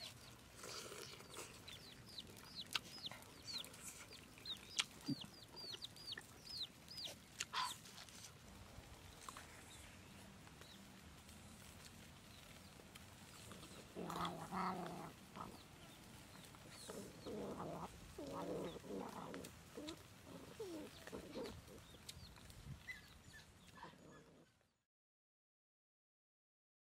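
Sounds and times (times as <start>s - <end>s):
puppies calling: 0.0s - 8.4s, 11.6s - 24.6s
faint birds chirping: 0.0s - 24.8s.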